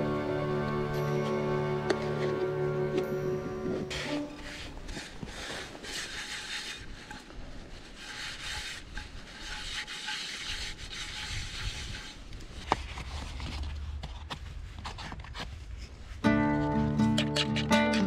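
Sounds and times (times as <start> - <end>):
utensil scraping a pan: 3.8 - 13.4.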